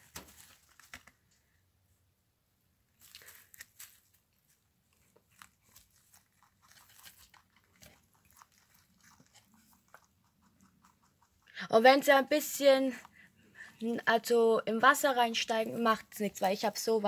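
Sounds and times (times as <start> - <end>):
rabbits chewing cucumber: 3.0 - 14.4.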